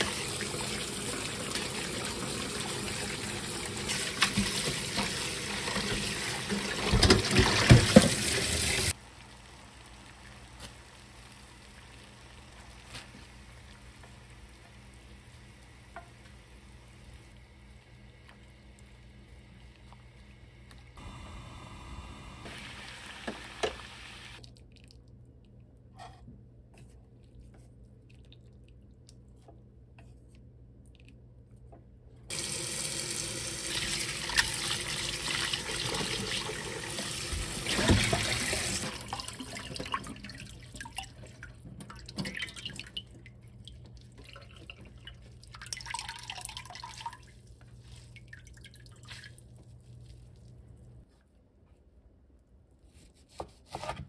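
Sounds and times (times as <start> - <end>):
tap water running into strainer: 0.0 - 9.0, 32.3 - 43.2, 44.1 - 47.3
drips and splashes: 37.3 - 50.8.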